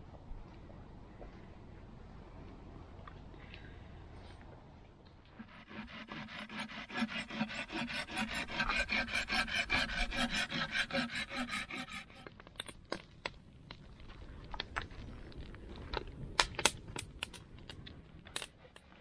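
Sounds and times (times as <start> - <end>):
saw rasping through wood: 5.4 - 12.3
campfire crackling: 12.2 - 19.0.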